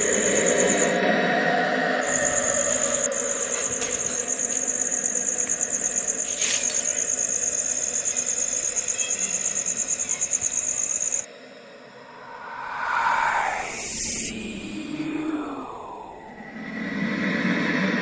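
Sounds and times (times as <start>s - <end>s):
crickets trilling: 0.0s - 18.0s
short swishing rush: 12.1s - 16.4s.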